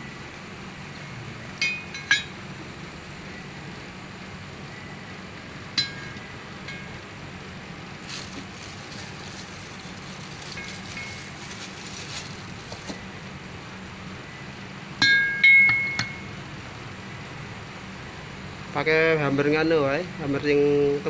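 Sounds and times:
steady low hum: 0:00.0 - 0:14.9
metal parts clinking: 0:08.0 - 0:13.0.

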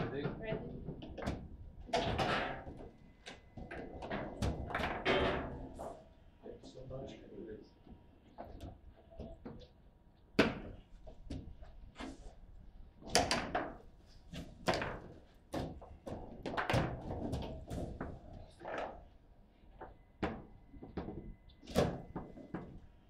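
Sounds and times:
table football knocks and clacks: 0:00.0 - 0:05.3, 0:10.4 - 0:11.7, 0:13.0 - 0:13.8, 0:14.4 - 0:18.4.

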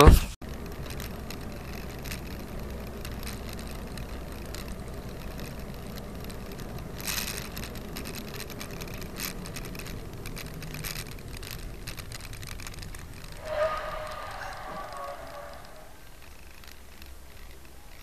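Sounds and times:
car engine and road rumble: 0:00.0 - 0:18.0
rush of noise: 0:13.2 - 0:16.2.

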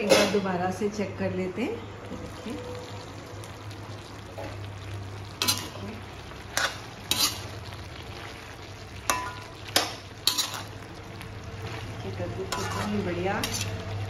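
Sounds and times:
faint sizzle: 0:00.0 - 0:14.0
metal spatula scraping pan: 0:05.4 - 0:07.6, 0:09.1 - 0:10.8, 0:12.4 - 0:13.9.

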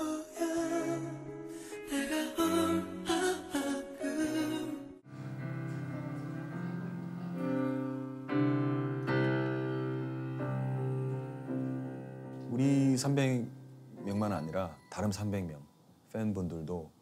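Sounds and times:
sustained keyboard chords: 0:05.1 - 0:15.8.

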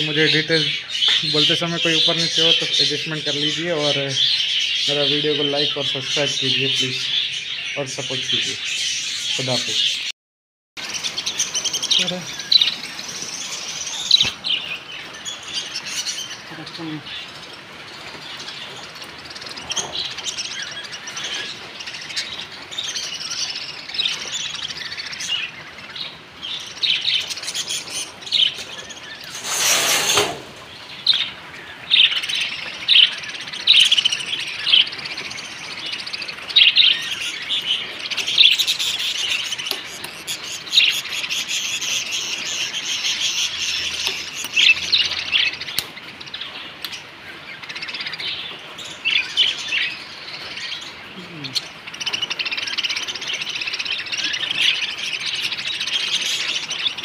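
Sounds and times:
budgerigars chattering and chirping: 0:00.0 - 0:10.1, 0:10.8 - 0:57.0
rustling noise: 0:29.2 - 0:30.9.

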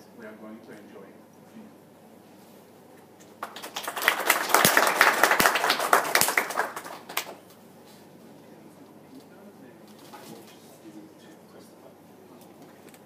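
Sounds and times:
audience applauding: 0:03.4 - 0:07.4.

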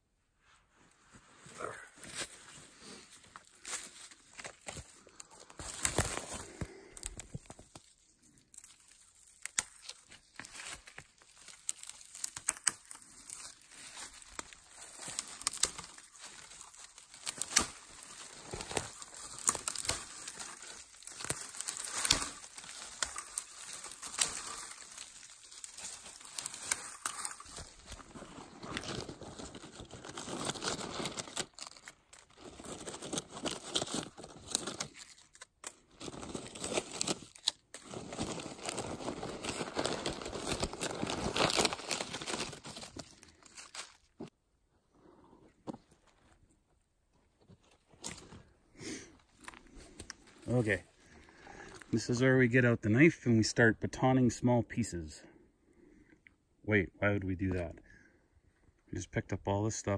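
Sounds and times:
rustling and crinkling: 0:00.4 - 0:44.4, 0:45.0 - 0:52.1
sharp crackles: 0:03.6 - 0:44.2.

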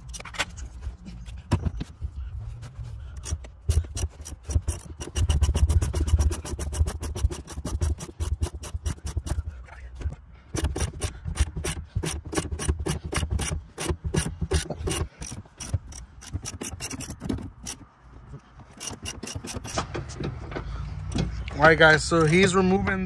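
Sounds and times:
ratchet wrench clicking: 0:03.2 - 0:09.4, 0:10.5 - 0:17.9, 0:18.6 - 0:19.8, 0:21.5 - 0:22.6.

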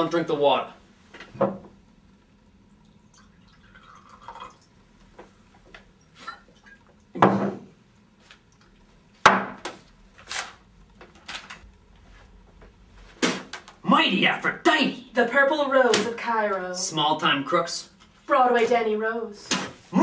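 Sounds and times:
liquid pouring into a glass: 0:02.7 - 0:04.8.

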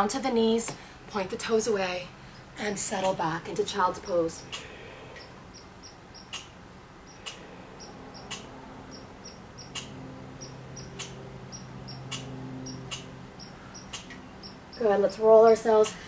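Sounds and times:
low steady hum: 0:00.0 - 0:16.0
sharp ticks: 0:05.2 - 0:06.5, 0:07.1 - 0:14.9.

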